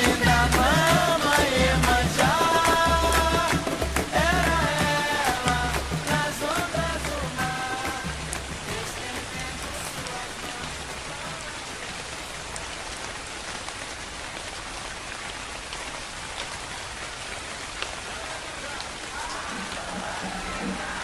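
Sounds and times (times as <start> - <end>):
music with singing: 0.0 - 11.7, 19.1 - 21.0
raindrops pattering on a surface: 0.0 - 21.0
steady rain hissing: 0.0 - 21.0.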